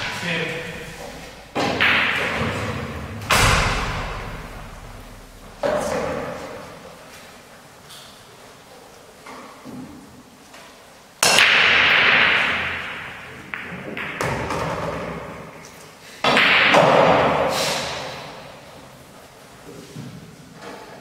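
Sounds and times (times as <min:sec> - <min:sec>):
pool balls clattering: 0:00.0 - 0:06.0, 0:11.3 - 0:15.6.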